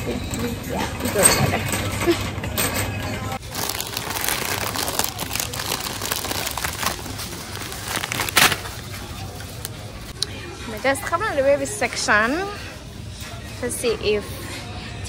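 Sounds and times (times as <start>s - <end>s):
snack bag rustling: 3.4s - 9.8s.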